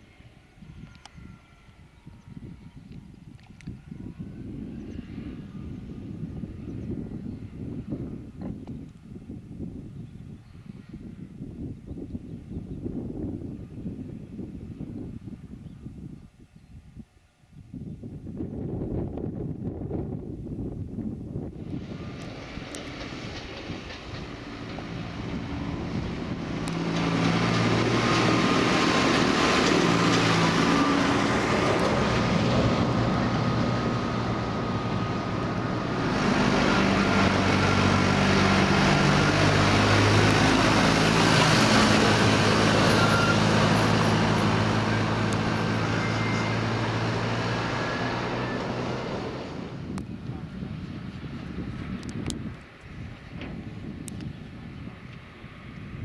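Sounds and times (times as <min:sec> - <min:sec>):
diesel tractor engine: 0:21.5 - 0:55.4.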